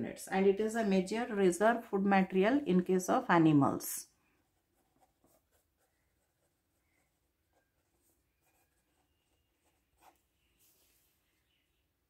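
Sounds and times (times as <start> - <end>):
pen scratching on paper: 4.4 - 10.4.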